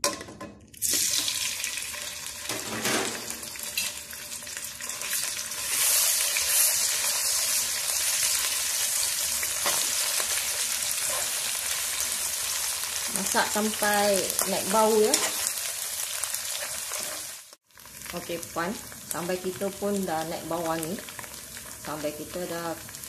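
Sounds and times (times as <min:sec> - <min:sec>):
paste sizzling in hot oil: 0:03.3 - 0:23.0
metal spatula scraping wok: 0:09.4 - 0:12.3, 0:14.3 - 0:17.4.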